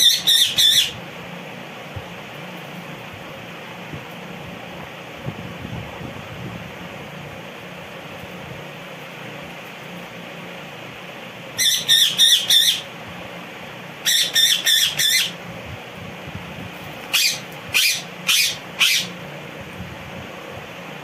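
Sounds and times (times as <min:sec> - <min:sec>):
parakeet calling: 0:00.0 - 0:01.0, 0:11.5 - 0:12.9, 0:14.0 - 0:15.4, 0:17.0 - 0:19.2
steady low hum: 0:00.0 - 0:21.0.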